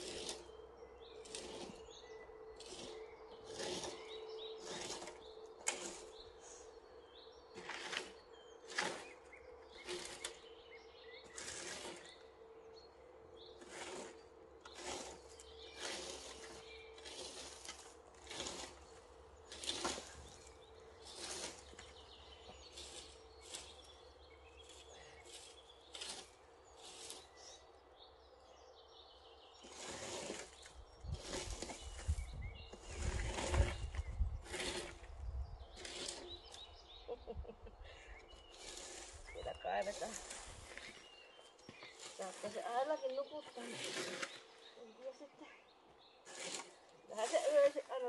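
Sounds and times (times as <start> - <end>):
scraping rustling strokes: 0.0 - 2.0, 2.6 - 6.8, 7.6 - 10.6, 11.2 - 12.4, 13.4 - 27.6, 29.6 - 37.4, 38.1 - 45.2, 46.2 - 48.0.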